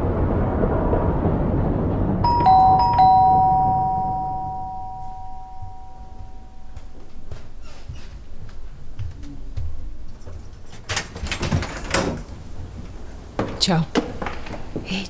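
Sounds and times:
two-note doorbell chime: 2.2 - 7.2.

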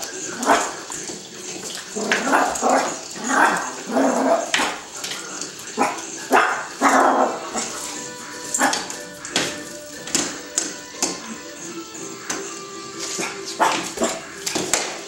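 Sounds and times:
small dog barking: 0.3 - 0.8, 2.0 - 4.8, 5.7 - 9.4, 13.1 - 14.4.

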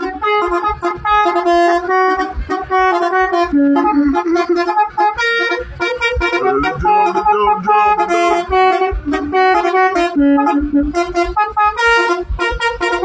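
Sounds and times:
upbeat music with steady beat: 5.8 - 9.9.

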